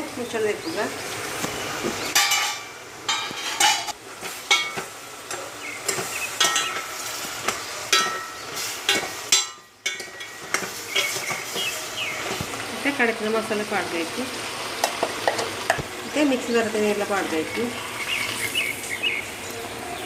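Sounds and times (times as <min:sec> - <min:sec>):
food sizzling in pot: 0:00.0 - 0:20.0
metal spoon scraping a pot: 0:07.9 - 0:12.4.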